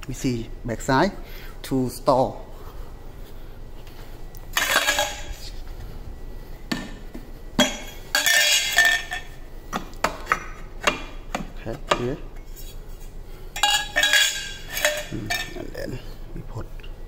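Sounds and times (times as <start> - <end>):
vacuum wands clattering: 4.5 - 5.5, 7.6 - 9.3, 13.6 - 15.6.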